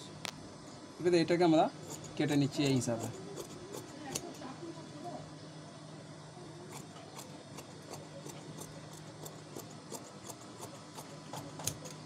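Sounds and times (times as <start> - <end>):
shears snipping cloth: 1.8 - 4.5, 6.7 - 12.0.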